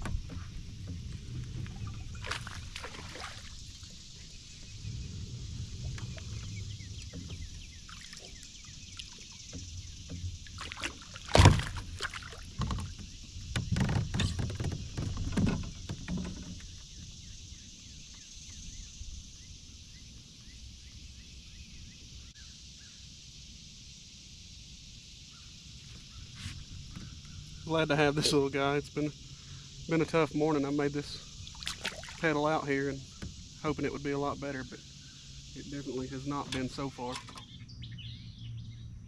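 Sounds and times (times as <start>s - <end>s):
fish splashing at water surface: 2.1s - 4.0s, 10.4s - 12.6s, 31.4s - 32.3s.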